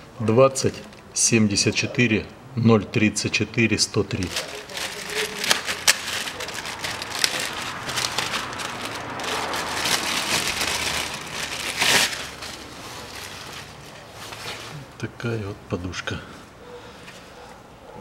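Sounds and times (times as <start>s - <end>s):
plastic bag crinkling: 4.1s - 14.9s.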